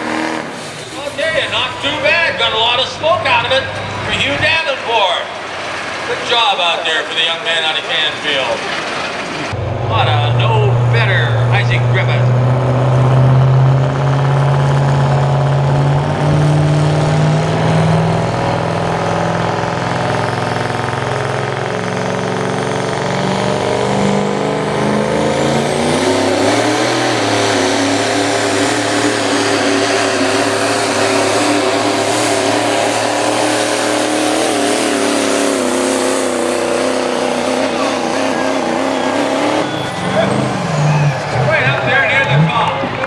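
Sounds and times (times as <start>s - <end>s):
diesel engine revving under load: 0.0s - 43.0s.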